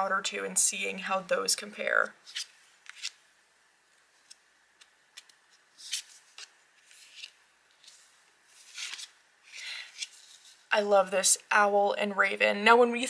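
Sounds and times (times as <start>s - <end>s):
cards sliding and tapping: 2.2s - 3.2s, 4.2s - 10.6s.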